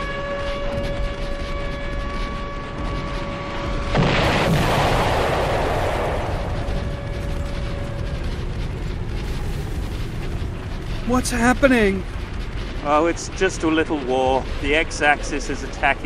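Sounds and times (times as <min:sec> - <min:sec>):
alarm steady tone: 0:00.0 - 0:04.0, 0:05.8 - 0:12.8
loud rumbling explosion: 0:03.6 - 0:14.9.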